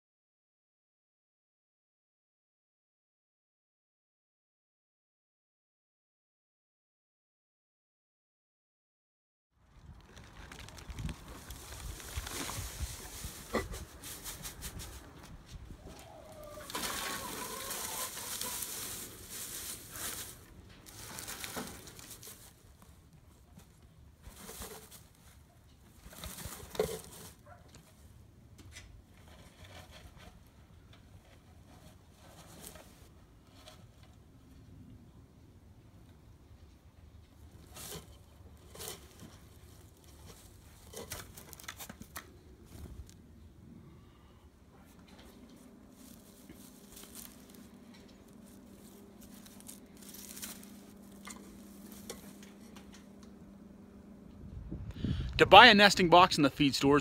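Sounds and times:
rustling of straw: 0:09.7 - 0:28.0, 0:31.0 - 0:34.1, 0:37.4 - 0:43.2, 0:44.8 - 0:53.0
low steady hum: 0:09.7 - 0:57.0.

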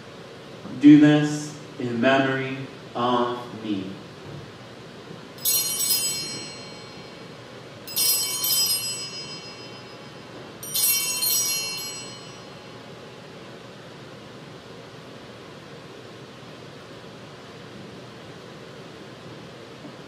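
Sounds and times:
altar bells jangling: 0:05.4 - 0:12.9.

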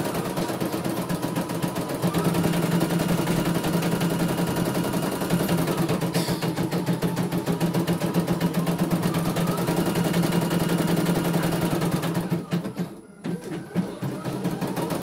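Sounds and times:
embroidery machine stitching: 0:00.0 - 0:15.0.

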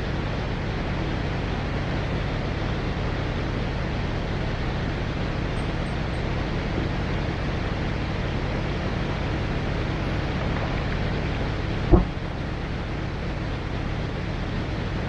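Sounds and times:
engine drone: 0:00.0 - 0:15.0
sharp knock: 0:11.9 - 0:12.2.

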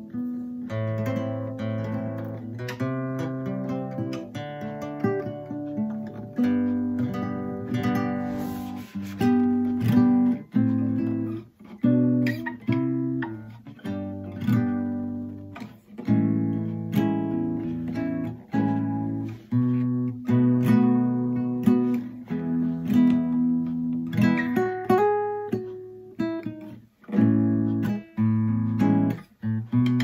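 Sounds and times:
nylon-string guitar chords: 0:00.0 - 0:30.0.

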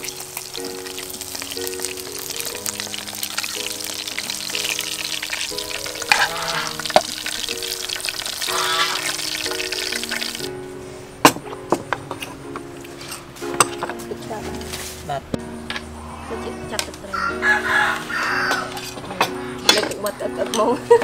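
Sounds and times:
fish sizzling in hot oil: 0:00.0 - 0:10.6
metal tongs clicking on pan: 0:18.5 - 0:20.8.

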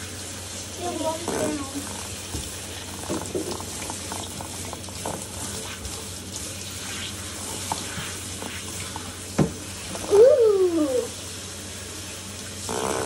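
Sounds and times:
water spraying hiss: 0:05.0 - 0:13.0.

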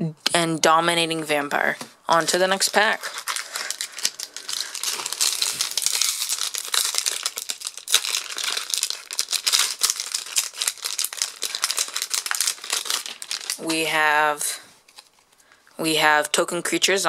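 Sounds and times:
foil wrapper tearing and crinkling: 0:02.1 - 0:13.6.

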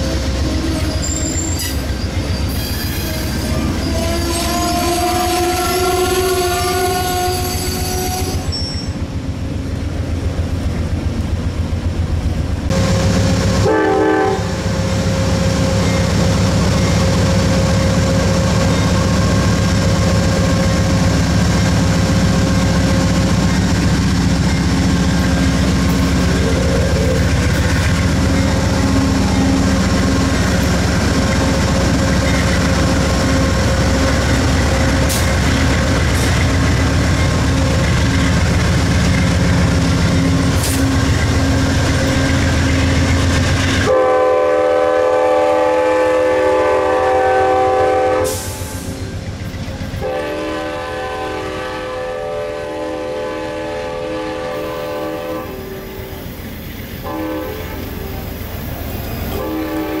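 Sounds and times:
diesel locomotive engine running: 0:00.0 - 1:00.0
locomotive air horn blasts: 0:02.6 - 0:08.9, 0:13.6 - 0:14.7, 0:43.8 - 0:48.9, 0:50.0 - 0:56.1, 0:57.0 - 0:58.2, 0:59.3 - 1:00.0.

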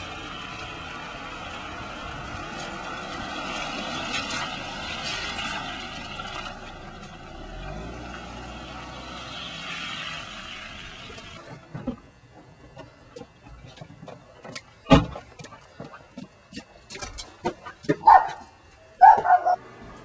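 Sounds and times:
tyres hissing on wet road: 0:00.0 - 0:11.6.

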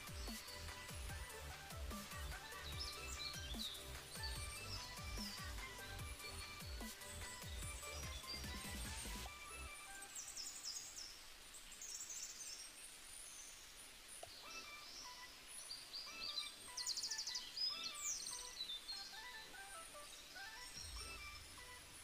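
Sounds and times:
birds chirping and trilling: 0:00.0 - 0:22.0.

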